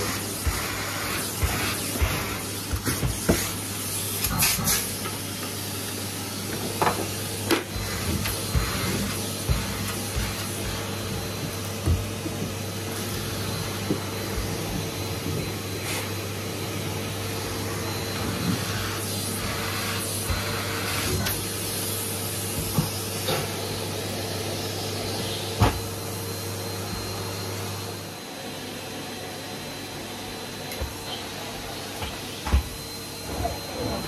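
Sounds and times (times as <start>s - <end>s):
vacuum cleaner running: 0.0s - 34.0s
vacuum tool knocking: 6.6s - 12.6s, 22.5s - 23.5s, 32.0s - 32.8s.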